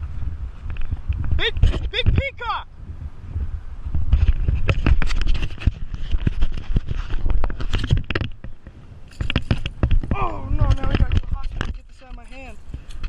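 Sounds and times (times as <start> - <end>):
clothing and grass scratching camera: 0.0 - 2.5, 3.8 - 13.0
low wind rumble on microphone: 0.0 - 13.0.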